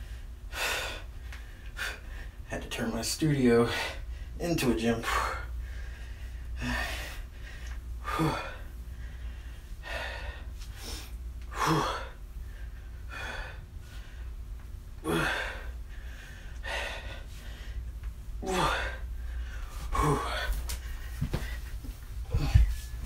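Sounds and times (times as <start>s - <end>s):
man breathing hard: 0.0s - 2.5s, 3.6s - 4.4s, 5.0s - 14.4s, 15.0s - 23.0s
low steady hum: 0.0s - 23.0s
man grunting: 15.0s - 15.6s, 18.4s - 19.0s, 19.9s - 20.5s.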